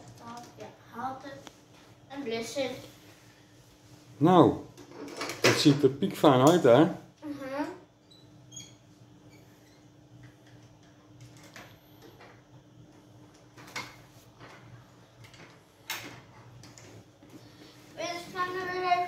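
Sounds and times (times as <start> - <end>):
child's voice: 0.1 - 1.5, 2.1 - 2.9, 7.2 - 7.9, 18.0 - 19.0.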